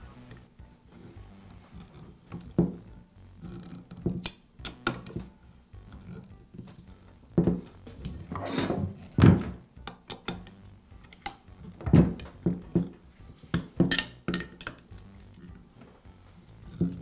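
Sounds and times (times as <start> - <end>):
tools knocking on wooden workbench: 2.3 - 2.8, 3.9 - 5.3, 7.3 - 10.5, 11.8 - 14.8.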